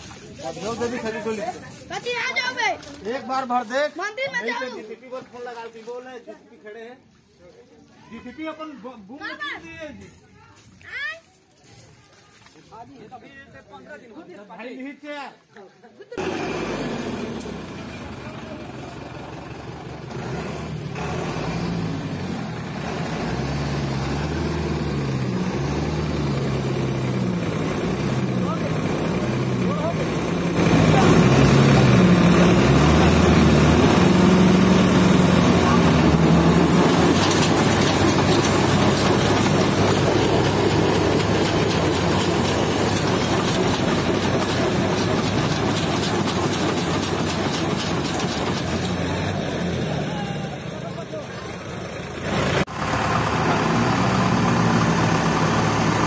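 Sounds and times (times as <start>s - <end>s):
diesel engine revving under load: 16.2s - 56.0s.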